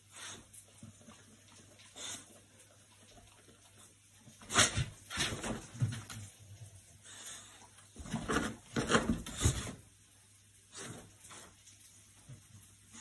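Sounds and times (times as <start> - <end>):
dog sniffing and snuffling: 0.0 - 5.4.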